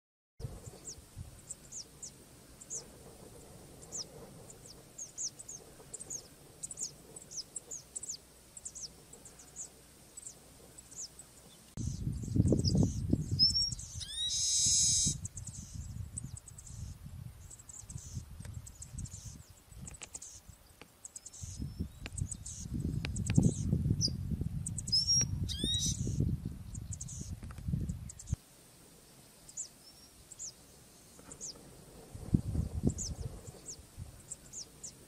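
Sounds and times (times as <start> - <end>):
short rising whistle: 14.0 - 15.2.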